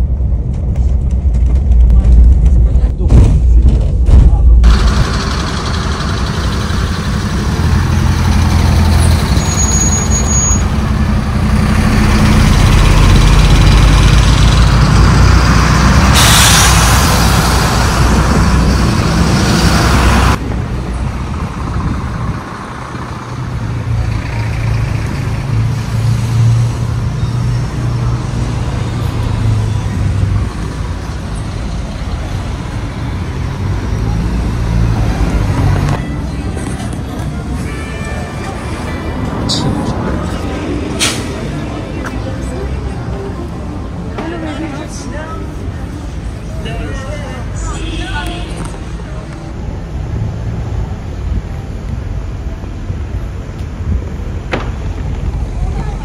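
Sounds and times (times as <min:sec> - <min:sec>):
coach engine drone: 0:00.0 - 0:56.0
loud hiss: 0:16.0 - 0:18.0.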